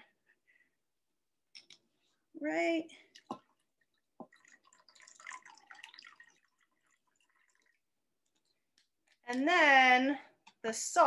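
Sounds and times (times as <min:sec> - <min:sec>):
liquid trickling into cup: 0:03.1 - 0:08.7.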